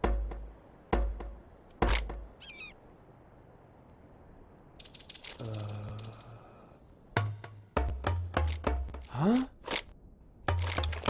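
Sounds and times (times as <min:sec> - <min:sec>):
rapid clicks: 0:04.8 - 0:06.4.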